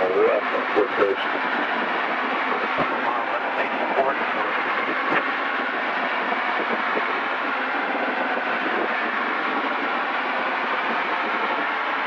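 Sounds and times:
light aircraft engine drone: 0.0s - 12.0s.

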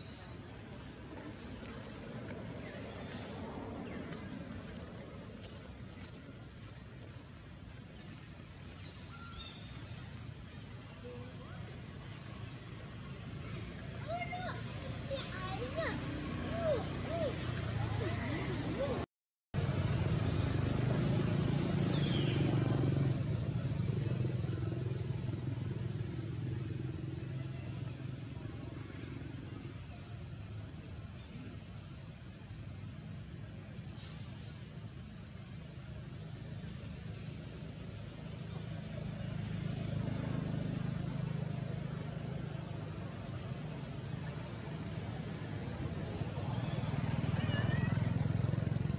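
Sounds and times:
vehicle engine droning: 19.6s - 48.9s.

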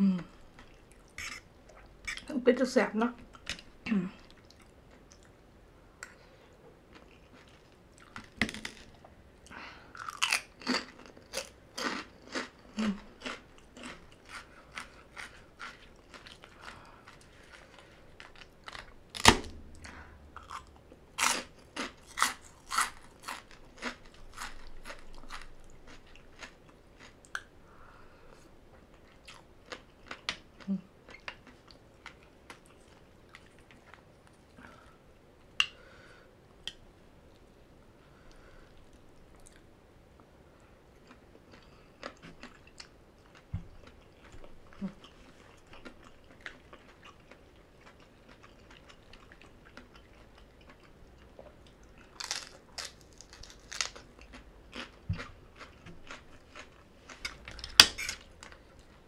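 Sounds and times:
crunchy chewing: 9.9s - 27.5s, 41.0s - 59.0s.

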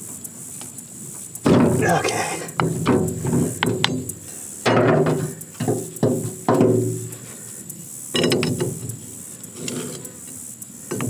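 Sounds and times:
wrench clanking on steel: 8.2s - 8.9s.

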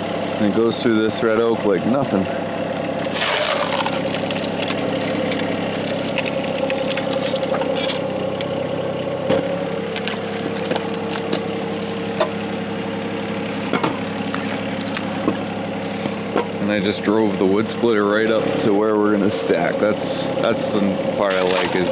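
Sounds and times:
diesel engine under hydraulic load: 0.0s - 21.9s
wood splitting cracks: 3.0s - 8.1s, 14.0s - 15.1s, 21.3s - 21.9s.

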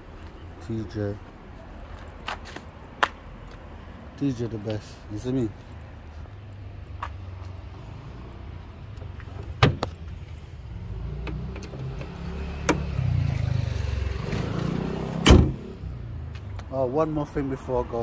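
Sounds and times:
low vehicle rumble: 5.0s - 18.0s
car bonnet slamming shut: 15.2s - 15.6s.

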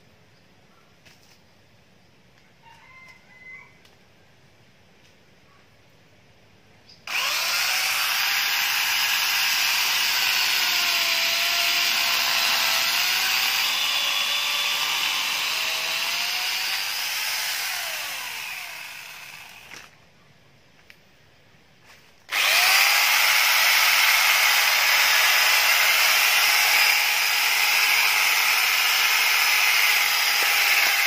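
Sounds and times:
motor winding down: 7.1s - 19.9s, 22.3s - 31.0s
electric chainsaw cutting wood: 7.1s - 20.0s, 22.3s - 31.0s.

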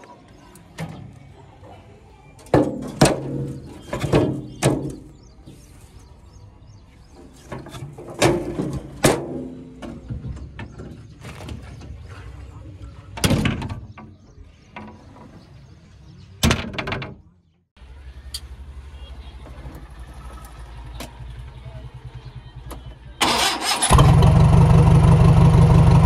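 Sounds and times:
metal clunks and rattles: 2.4s - 5.2s, 7.2s - 12.0s, 13.2s - 15.6s, 16.4s - 17.3s
low engine hum: 23.9s - 26.0s.

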